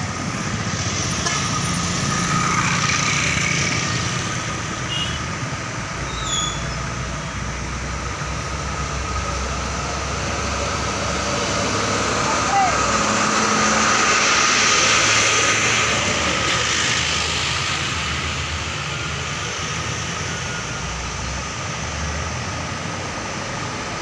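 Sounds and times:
trucks driving past: 0:00.0 - 0:24.0
motorcycles driving past: 0:00.2 - 0:04.7.

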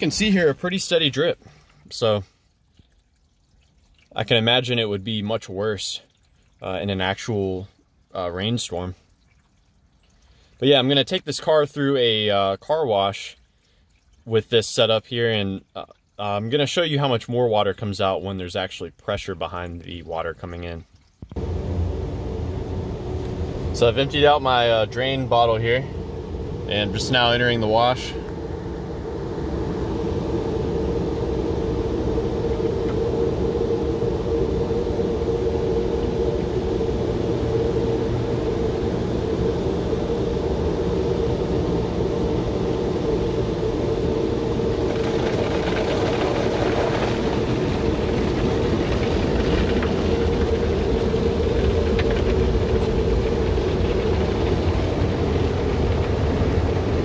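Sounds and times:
water on car bodywork: 0:00.0 - 0:28.7, 0:43.7 - 0:57.0
car wash equipment rumble: 0:00.0 - 0:57.0.

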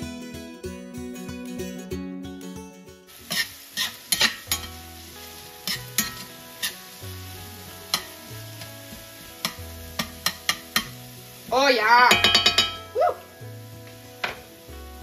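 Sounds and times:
acoustic guitar music: 0:00.0 - 0:15.0
meat sizzling in a frying pan: 0:03.1 - 0:15.0.

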